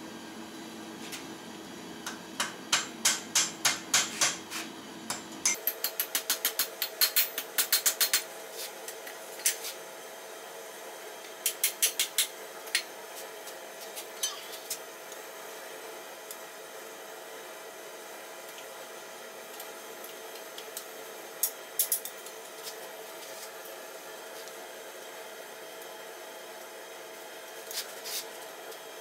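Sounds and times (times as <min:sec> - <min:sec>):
hammer striking metal on anvil: 0:02.1 - 0:04.4, 0:05.1 - 0:08.2.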